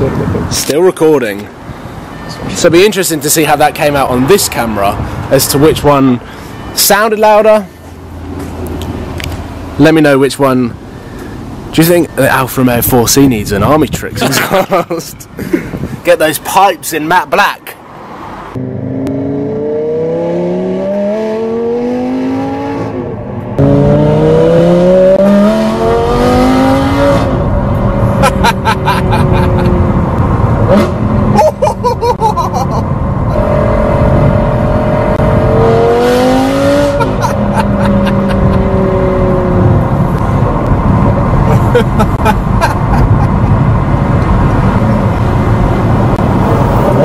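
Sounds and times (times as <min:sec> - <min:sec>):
car engine accelerating: 0:18.5 - 0:47.0.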